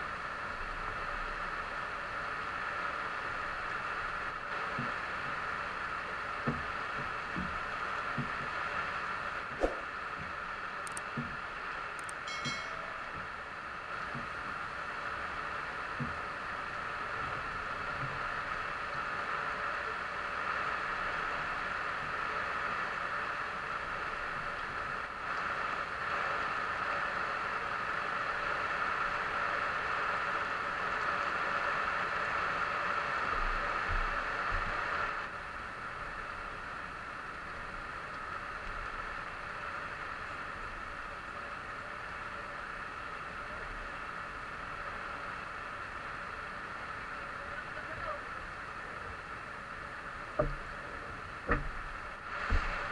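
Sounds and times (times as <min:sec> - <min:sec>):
heavy rain hissing: 0:00.0 - 0:12.1, 0:12.9 - 0:52.9
water rushing past a boat: 0:12.7 - 0:52.9.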